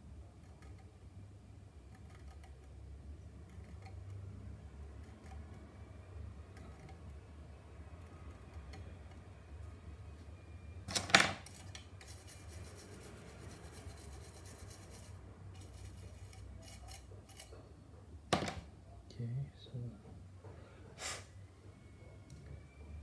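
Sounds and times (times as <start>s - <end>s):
fine scratching on plastic: 12.0s - 17.6s.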